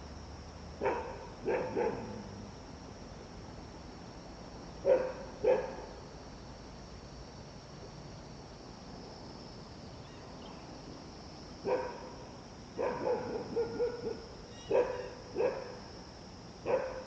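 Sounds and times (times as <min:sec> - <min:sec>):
dog barking: 0:00.8 - 0:02.2, 0:04.8 - 0:05.8, 0:11.7 - 0:12.0, 0:12.8 - 0:15.8, 0:16.6 - 0:17.0.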